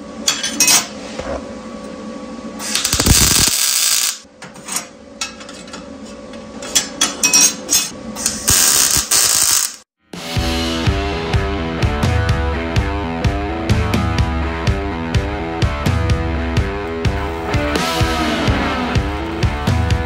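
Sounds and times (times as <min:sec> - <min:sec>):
welder arc noise: 0:02.6 - 0:04.3, 0:07.7 - 0:09.9, 0:16.8 - 0:20.0.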